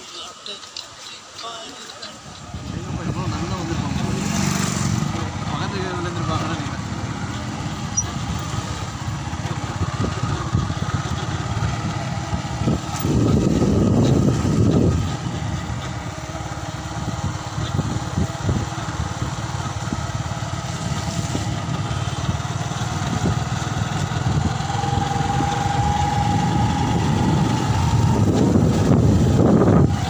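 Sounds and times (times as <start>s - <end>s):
motorcycle engine running: 2.2s - 30.0s.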